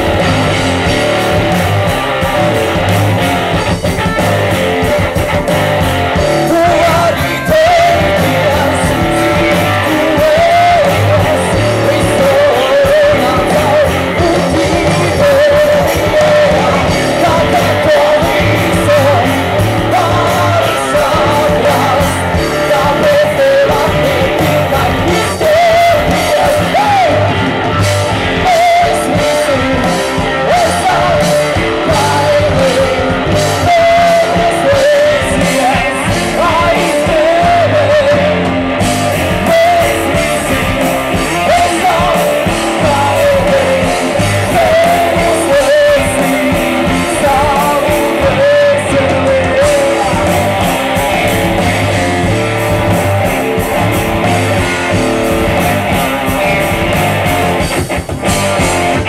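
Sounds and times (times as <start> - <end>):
man singing: 0.0 - 57.0
live rock band playing: 0.0 - 59.0.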